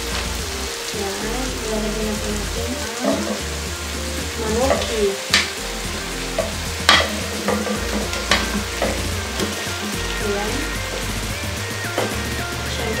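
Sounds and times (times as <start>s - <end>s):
chicken sizzling in frying pan: 0.0s - 13.0s
wooden spatula knocking: 4.6s - 5.6s, 6.4s - 9.8s.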